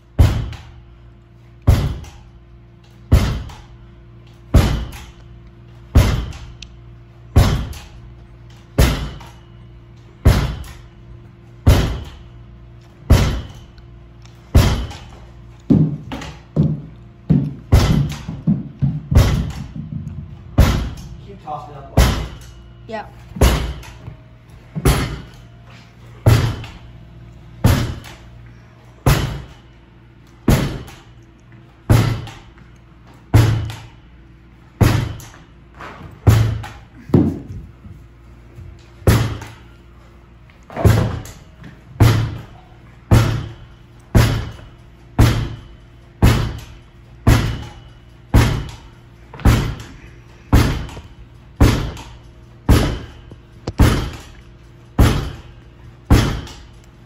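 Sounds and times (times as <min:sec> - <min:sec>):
ball hitting a wall: 0:03.1 - 0:03.7, 0:14.5 - 0:21.1, 0:36.0 - 0:37.7.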